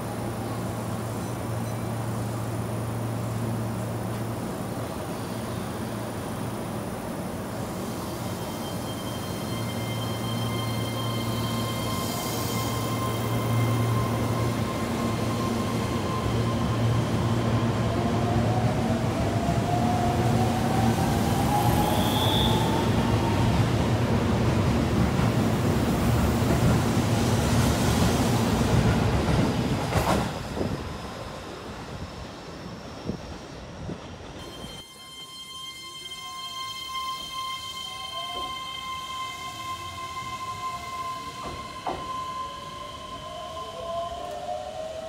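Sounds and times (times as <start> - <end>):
train wheels rumbling on rails: 11.1 - 34.8, 39.7 - 43.2.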